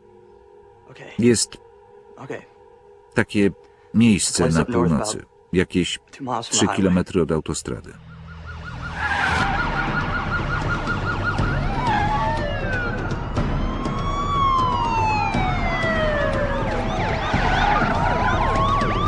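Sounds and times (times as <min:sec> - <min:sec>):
police siren yelp: 0:08.0 - 0:19.0
police sirens wailing: 0:08.0 - 0:19.0.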